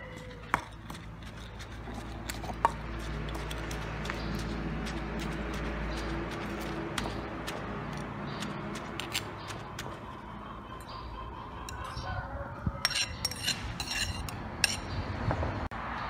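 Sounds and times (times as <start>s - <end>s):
metal spoon scraping ceramic plate: 12.8s - 15.0s.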